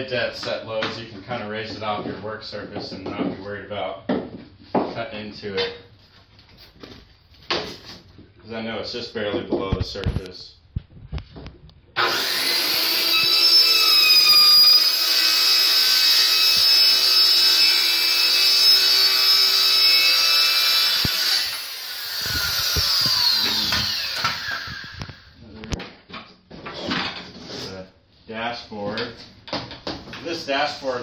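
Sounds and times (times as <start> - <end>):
circular saw cutting wood: 12.0 - 25.4.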